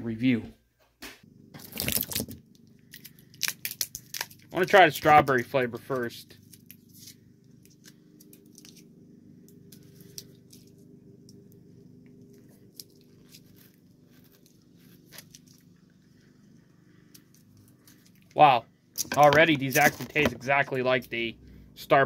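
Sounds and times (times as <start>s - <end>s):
steady low hum: 1.1s - 22.0s
ice pop crunching: 2.9s - 4.5s.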